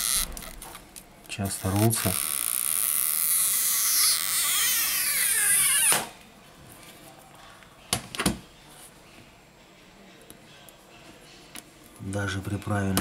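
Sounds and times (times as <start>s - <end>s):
adhesive tab squealing: 1.6s - 6.0s.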